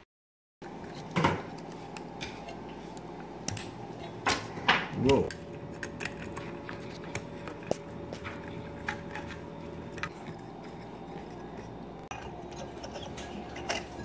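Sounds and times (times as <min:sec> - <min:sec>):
light fixture parts clicking: 0:12.1 - 0:14.0.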